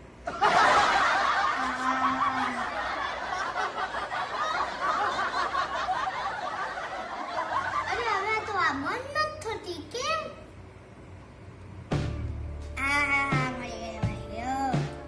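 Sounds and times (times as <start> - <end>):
high-pitched laughter: 0.4 - 3.3.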